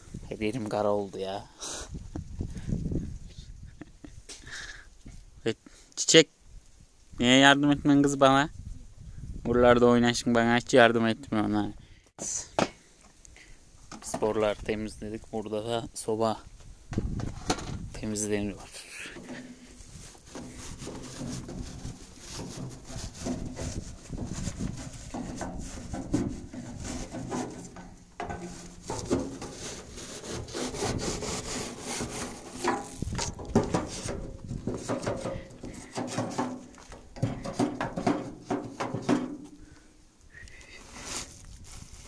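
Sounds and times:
scraping inside a stove: 0:19.0 - 0:39.3.

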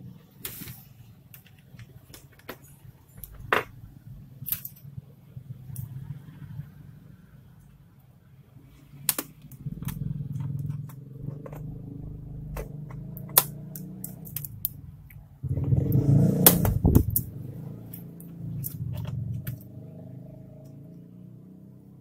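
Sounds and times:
keyboard rubbing against case: 0:09.7 - 0:13.4.

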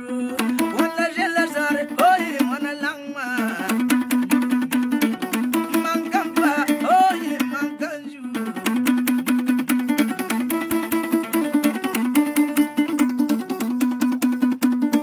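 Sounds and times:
man singing: 0:00.0 - 0:09.2
plucked lute pattern: 0:00.0 - 0:15.0.

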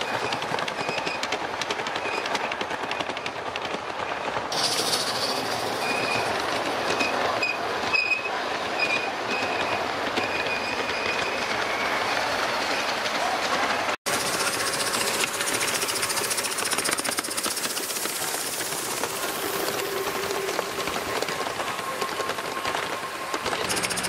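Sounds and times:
model train wheels clicking: 0:00.0 - 0:07.3, 0:13.0 - 0:24.0
high wheel squeals: 0:04.5 - 0:12.9, 0:18.8 - 0:24.0.

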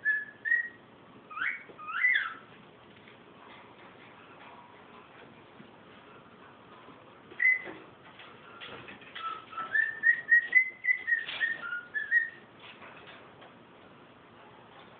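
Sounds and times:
cockatiel whistling: 0:00.0 - 0:02.5, 0:07.4 - 0:07.8, 0:09.2 - 0:12.5.

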